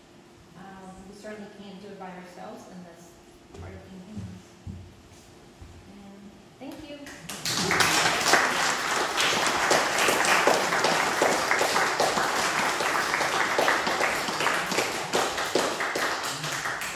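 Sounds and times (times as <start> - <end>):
audience applauding: 7.3 - 16.9.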